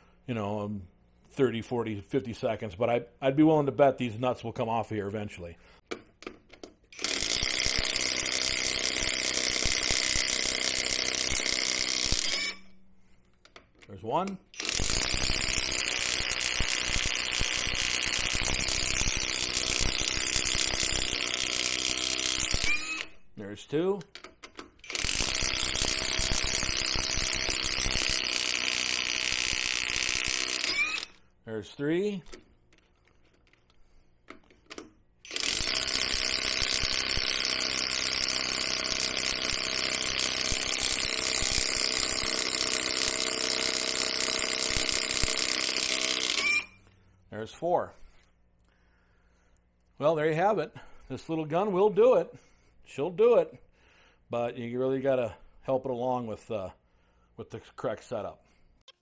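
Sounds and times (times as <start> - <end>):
impact wrench hammering: 5.8 - 12.7, 14.6 - 23.1, 24.1 - 31.2, 34.3 - 46.7.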